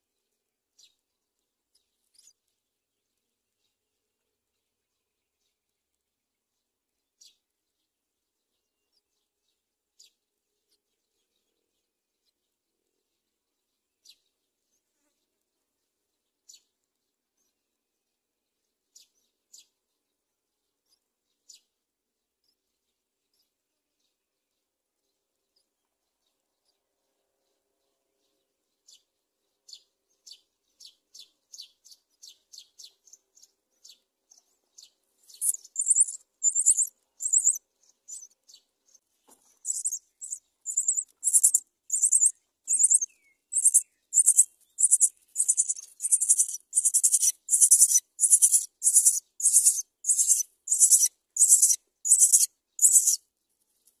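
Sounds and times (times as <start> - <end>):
nestlings cheeping: 35.4 - 38.3, 39.6 - 53.2.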